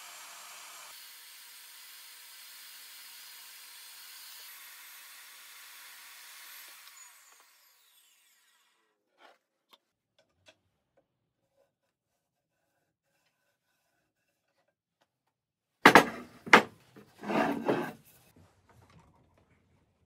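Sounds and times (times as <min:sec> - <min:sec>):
table saw running: 0:00.0 - 0:08.7
wood pieces knocking on table: 0:15.9 - 0:16.7.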